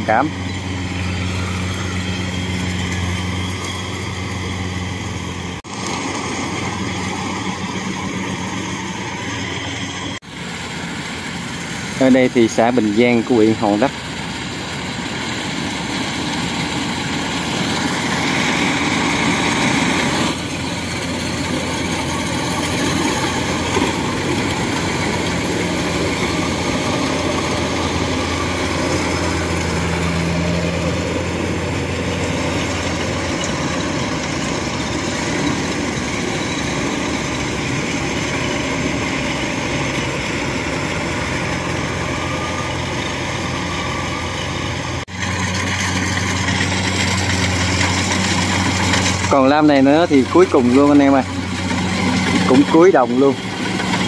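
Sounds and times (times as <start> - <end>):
combine harvester running: 0.0 - 54.0.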